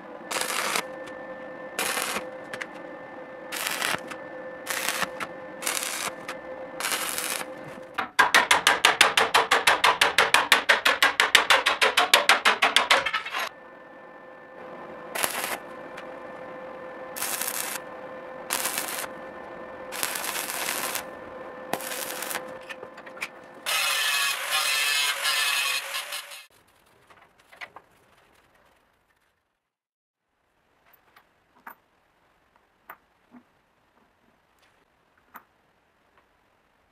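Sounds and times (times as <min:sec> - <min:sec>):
pulsing electric weld: 0:00.3 - 0:02.8, 0:03.4 - 0:13.5, 0:15.1 - 0:16.1, 0:17.1 - 0:22.8, 0:23.5 - 0:26.5
angle grinder cutting steel: 0:00.3 - 0:02.9, 0:03.5 - 0:08.0, 0:15.1 - 0:16.1, 0:17.1 - 0:26.5
short tack weld bursts: 0:04.7 - 0:07.5, 0:17.2 - 0:17.8, 0:18.5 - 0:19.1, 0:19.9 - 0:21.0, 0:21.7 - 0:22.4.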